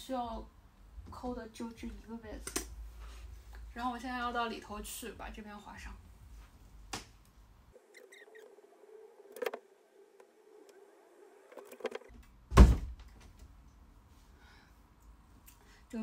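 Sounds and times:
loud thump: 0:12.5 - 0:13.0.

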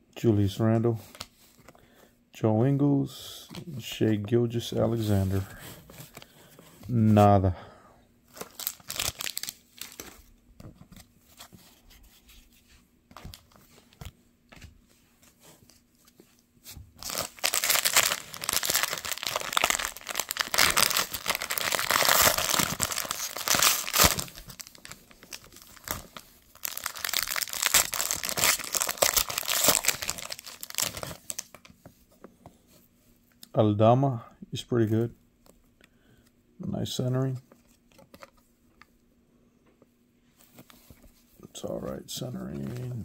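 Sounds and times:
foil card pack crinkling: 0:08.3 - 0:10.2, 0:17.0 - 0:31.6.

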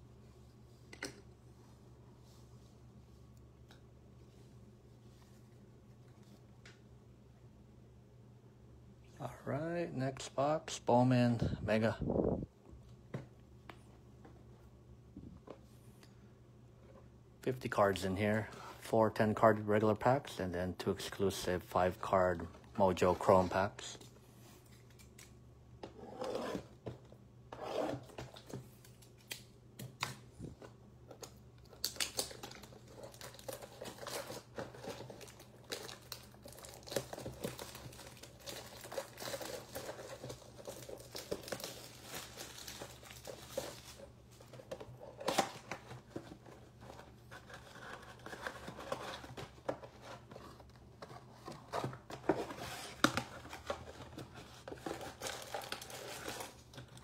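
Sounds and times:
plastic wrap crinkling and tearing: 0:31.7 - 0:44.1, 0:52.5 - 0:57.0.

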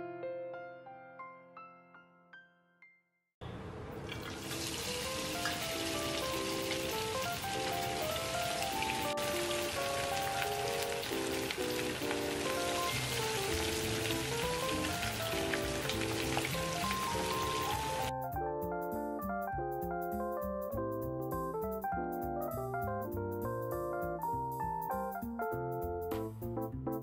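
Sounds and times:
hot oil sizzling: 0:03.6 - 0:18.1
background music: 0:04.8 - 0:27.0.

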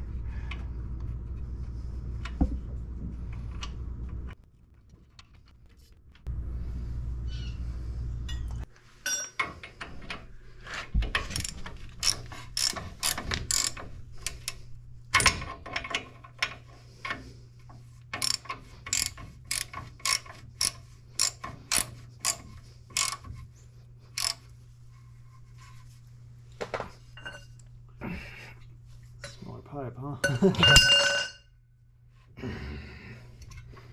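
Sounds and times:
low steady hum: 0:00.0 - 0:33.9
ratchet wrench clicking: 0:11.4 - 0:17.2, 0:18.1 - 0:23.2, 0:24.1 - 0:24.4.

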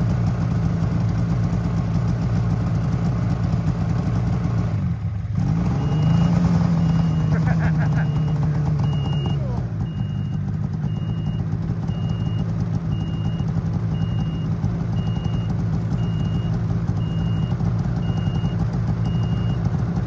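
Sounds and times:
snowmobile engine idling: 0:00.0 - 0:20.0
reverse warning beeps: 0:05.7 - 0:19.7.

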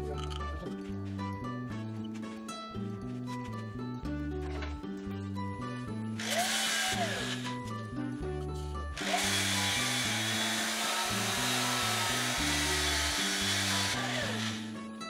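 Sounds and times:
background music with bass line: 0:00.0 - 0:15.0
drill sanding wooden bowl: 0:06.2 - 0:07.6, 0:09.0 - 0:14.8.

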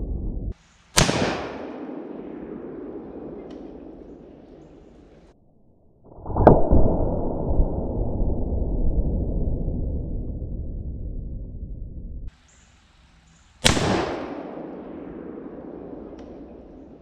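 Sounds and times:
rifle shot with echo: 0:01.0 - 0:05.3, 0:13.6 - 0:17.0.

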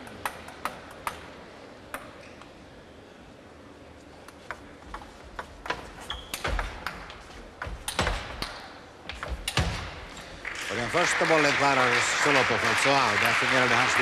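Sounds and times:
table tennis ball clicking: 0:00.0 - 0:02.2.

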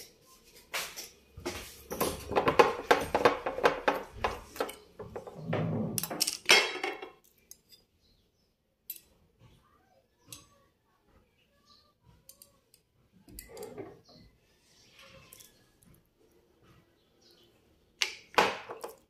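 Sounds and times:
jars knocking on tabletop: 0:02.0 - 0:05.4.

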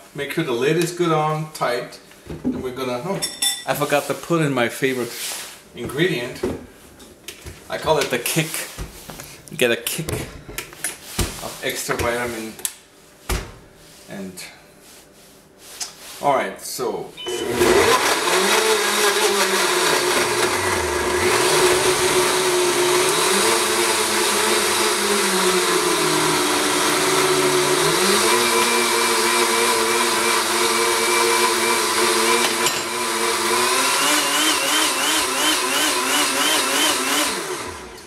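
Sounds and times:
blender motor running: 0:17.3 - 0:38.0.

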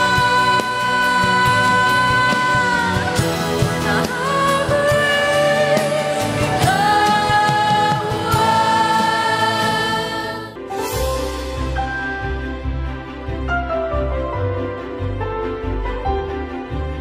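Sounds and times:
gospel singing over bass line: 0:00.0 - 0:11.7
soft instrumental music: 0:00.0 - 0:17.0.

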